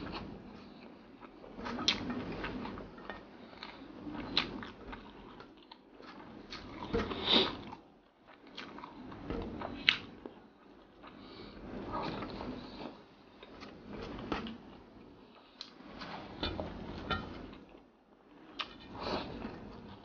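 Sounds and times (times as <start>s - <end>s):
person chewing with wet smacks: 3.6s - 9.1s.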